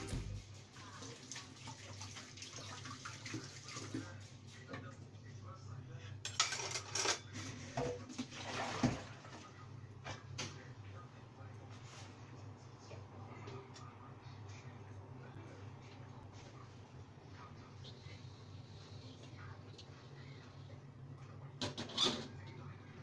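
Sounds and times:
tap water running: 0.0 - 4.2, 8.0 - 9.4
metal pots clattering and scraping: 6.2 - 9.1.

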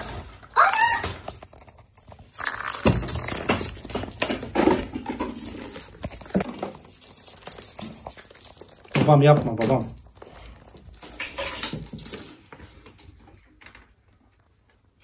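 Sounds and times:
plastic rattle ball clattering: 0.0 - 12.5.

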